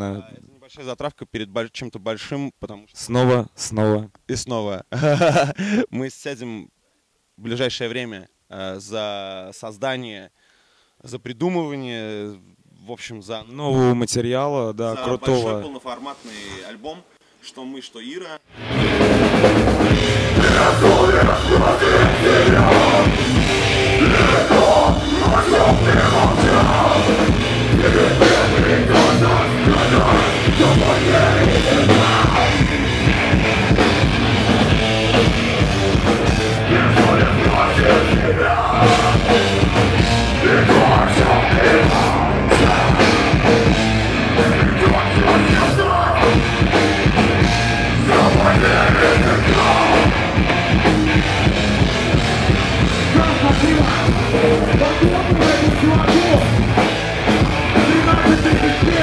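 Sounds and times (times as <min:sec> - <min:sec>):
vocals: 0:00.0 - 0:06.7, 0:07.4 - 0:10.4, 0:11.0 - 0:18.4, 0:19.2 - 0:52.1, 0:52.8 - 0:59.0
heavy rock band playing: 0:18.5 - 0:59.0.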